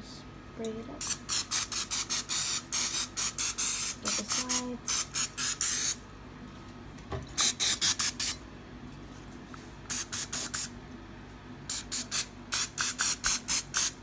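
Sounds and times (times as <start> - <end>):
aerosol spray hissing: 1.1 - 6.0.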